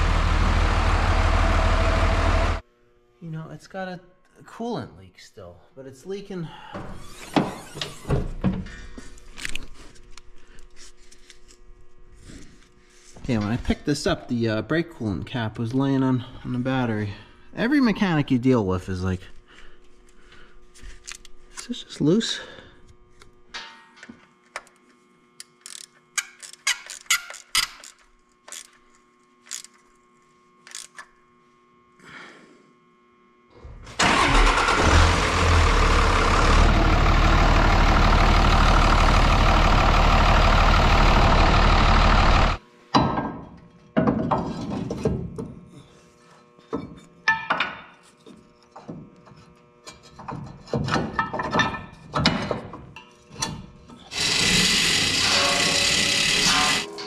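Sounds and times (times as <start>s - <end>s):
diesel engine running: 0.0s - 2.6s, 33.9s - 42.6s
ratchet clicking on metal fittings: 25.4s - 28.8s, 30.6s - 31.0s.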